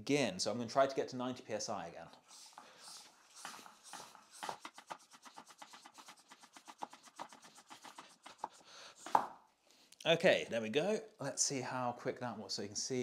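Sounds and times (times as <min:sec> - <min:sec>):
hand pump strokes: 0:02.3 - 0:04.9.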